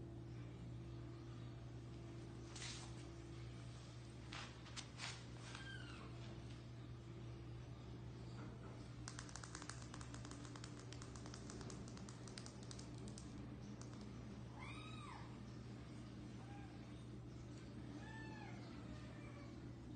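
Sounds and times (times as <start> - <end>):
steady low hum: 0.0 - 19.9
rapid light clicking: 9.0 - 14.2.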